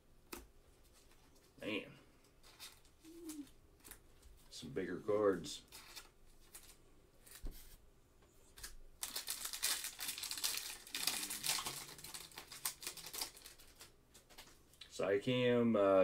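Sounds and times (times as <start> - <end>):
foil wrapper tearing and crinkling: 9.0 - 14.5.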